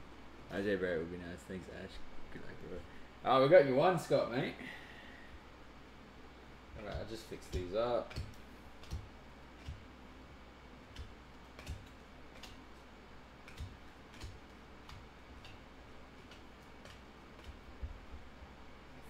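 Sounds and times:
faint low hum: 0.0 - 19.0
cards clicking and tapping: 6.7 - 9.9, 10.9 - 18.3.

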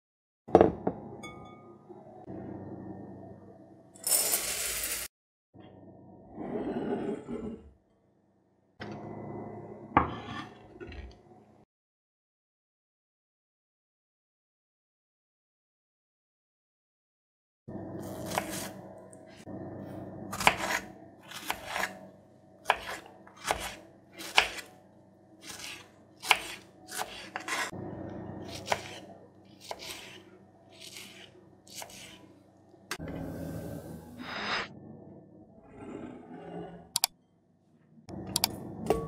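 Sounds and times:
knife cutting on wooden board: 20.4 - 22.0, 22.6 - 24.7, 25.4 - 27.7, 28.5 - 29.0, 29.6 - 32.3.

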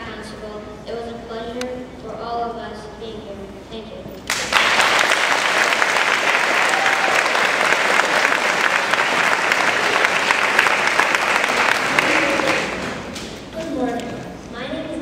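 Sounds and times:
audience applauding: 4.3 - 13.2.

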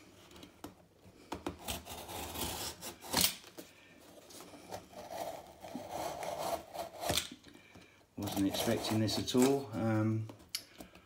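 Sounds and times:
knife cutting cardboard and tape: 1.2 - 3.6, 4.5 - 7.4, 8.2 - 9.9.

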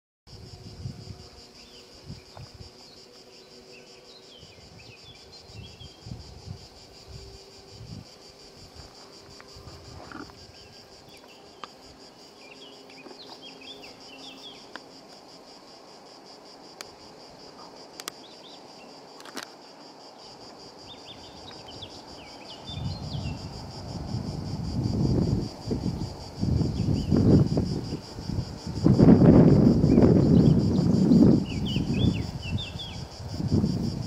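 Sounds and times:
wind rumbling on microphone: 0.3 - 3.0, 4.3 - 12.0, 20.2 - 34.0
insects buzzing: 0.3 - 34.0.

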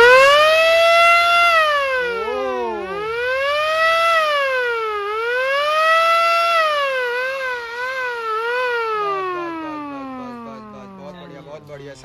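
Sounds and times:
siren car horn wailing: 0.0 - 11.8.

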